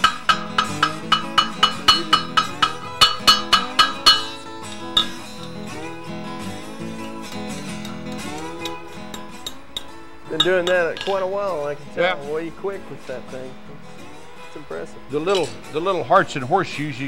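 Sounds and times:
hammer ringing on anvil: 0.0s - 5.3s
acoustic guitar music: 0.0s - 17.0s.

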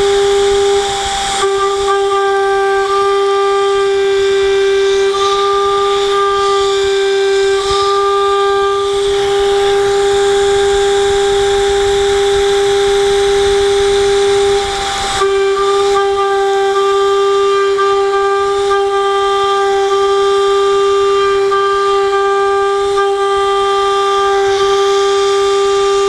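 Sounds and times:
router spindle cutting whine: 0.0s - 26.0s.

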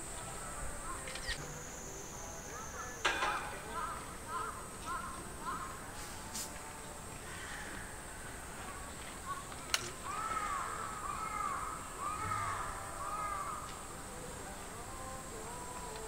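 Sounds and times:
crow cawing: 2.8s - 5.9s, 7.2s - 8.4s, 9.2s - 13.8s.

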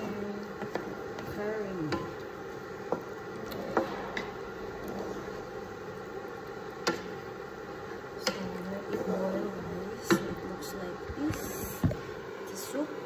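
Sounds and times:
low cooking hiss: 0.0s - 13.0s
wooden spatula knocking on wok: 10.0s - 10.4s.

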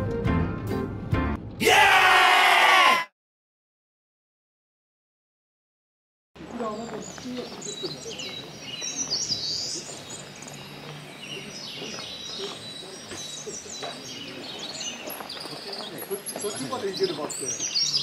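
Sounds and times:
forest birds chirping: 6.4s - 18.0s.

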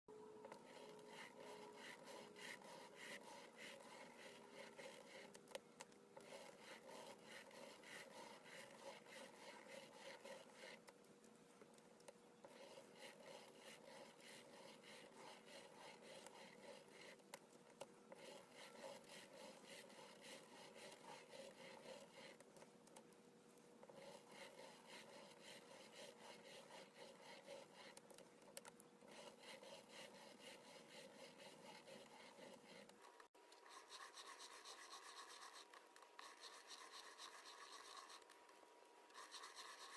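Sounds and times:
pen scratching on paper: 0.5s - 5.4s, 6.2s - 10.9s, 12.5s - 17.3s, 18.1s - 22.4s, 23.8s - 28.2s, 29.0s - 38.4s, 39.1s - 39.9s.

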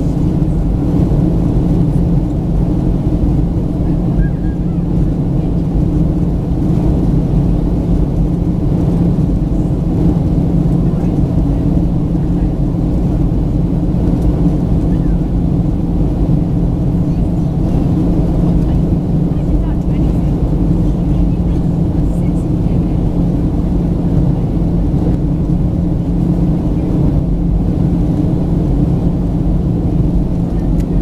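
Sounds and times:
airplane cabin rumble: 0.0s - 31.0s.

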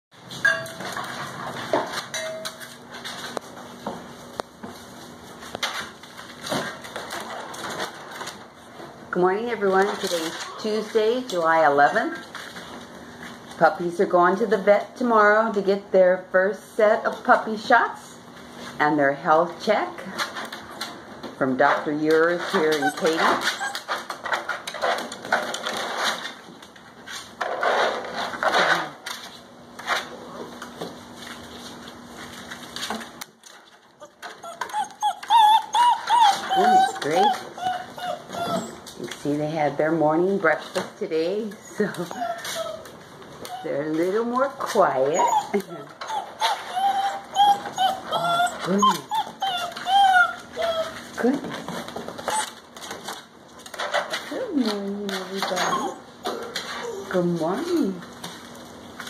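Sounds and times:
puppies whining and yipping: 22.5s - 24.1s, 34.0s - 39.0s, 41.6s - 44.0s, 44.9s - 51.2s, 52.2s - 52.6s, 55.4s - 57.2s.

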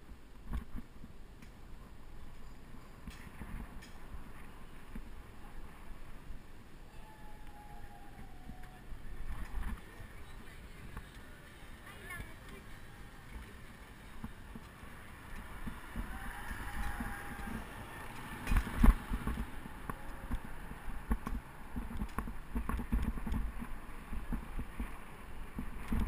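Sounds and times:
wind noise: 0.0s - 26.0s
bicycle road rattle: 9.0s - 26.0s.

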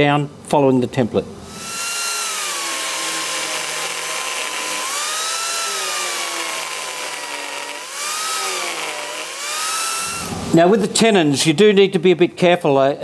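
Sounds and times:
angle grinder cutting wood: 1.5s - 10.6s.

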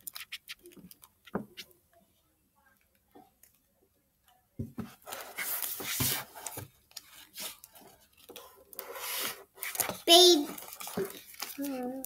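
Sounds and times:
book pages turning: 4.8s - 12.0s.

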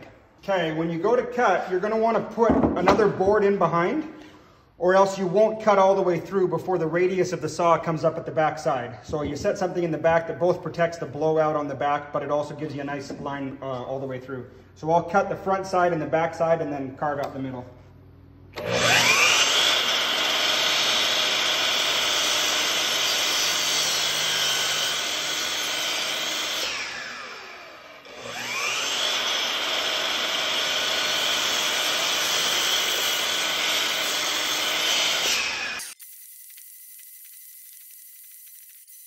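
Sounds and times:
mitre saw whining and cutting wood: 18.6s - 39.0s.

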